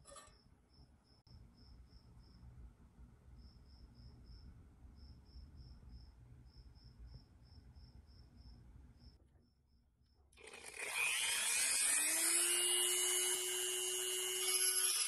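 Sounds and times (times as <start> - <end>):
cricket chirping: 0.1 - 2.5, 3.4 - 10.2.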